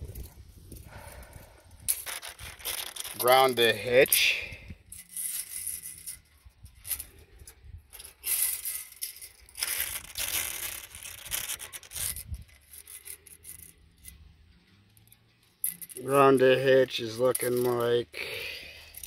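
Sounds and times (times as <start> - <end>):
rubbing and scraping: 0.0 - 4.2, 4.9 - 14.2.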